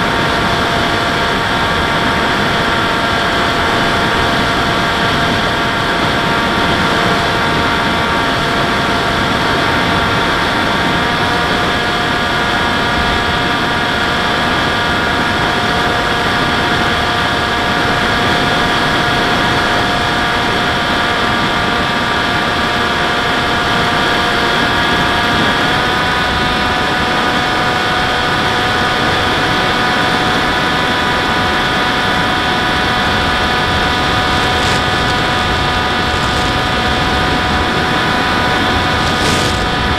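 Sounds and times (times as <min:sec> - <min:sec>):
model aircraft motor whine: 0:00.0 - 0:39.9
rush of air: 0:32.4 - 0:39.9.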